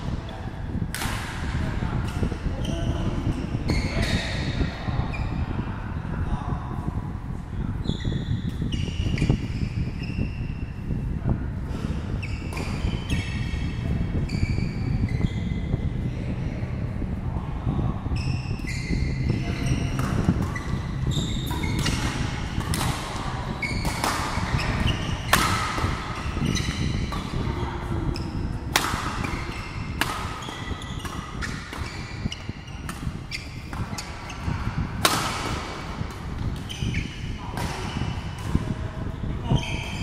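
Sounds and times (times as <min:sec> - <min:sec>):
steady low rumble: 0:00.0 - 0:40.0
rackets striking shuttlecock: 0:00.9 - 0:02.2, 0:19.9 - 0:27.5, 0:28.1 - 0:38.8
shoes squeaking on court: 0:02.1 - 0:05.4, 0:07.8 - 0:10.5, 0:12.1 - 0:15.7, 0:18.2 - 0:40.0.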